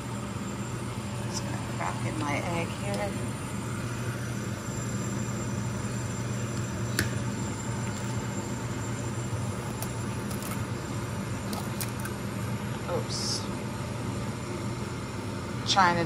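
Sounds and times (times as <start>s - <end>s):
steady low hum: 0.0s - 16.0s
egg cracking: 9.4s - 12.4s.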